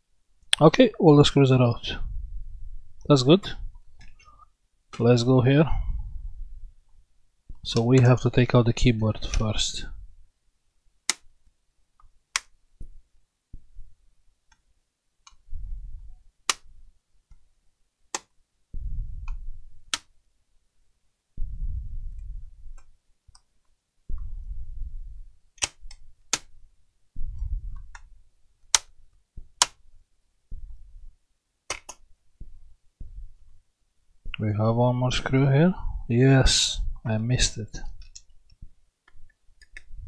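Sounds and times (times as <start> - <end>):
plastic latches clicking: 31.7 - 32.0.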